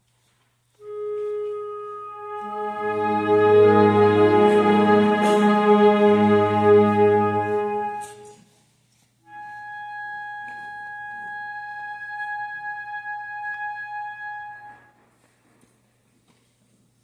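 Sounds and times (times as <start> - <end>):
wind instrument long high note: 0.8 - 8.4, 9.3 - 14.9
concert band chord: 2.4 - 8.2.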